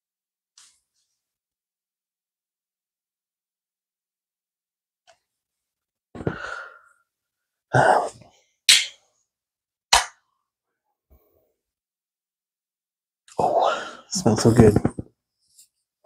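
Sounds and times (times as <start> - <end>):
throat or breath sounds: 6.2 - 6.9.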